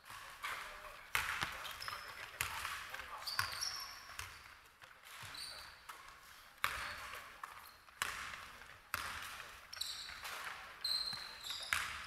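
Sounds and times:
sneaker squeaks on floor: 0.4 - 12.0
basketball bouncing on hardwood: 1.1 - 4.4, 6.6 - 7.0, 8.0 - 9.5, 10.2 - 12.0.

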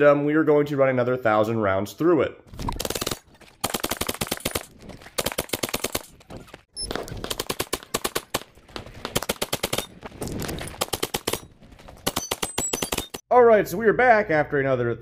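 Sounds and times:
rapid gunshots: 2.7 - 6.2, 7.1 - 10.0, 10.7 - 13.2.

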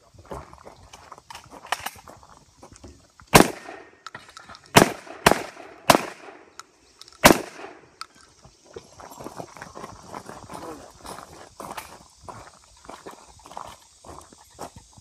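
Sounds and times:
rifle shots hitting steel targets: 3.3 - 6.6, 7.2 - 7.9.

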